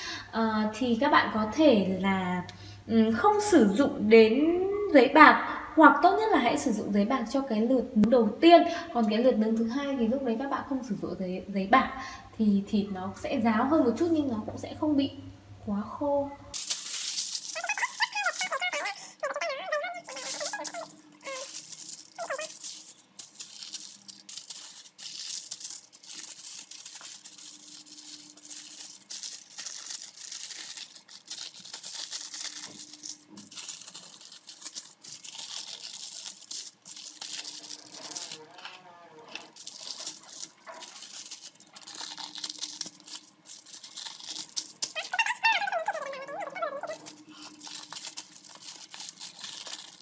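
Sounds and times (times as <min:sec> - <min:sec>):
aluminium foil crinkling: 0:16.5 - 0:50.0.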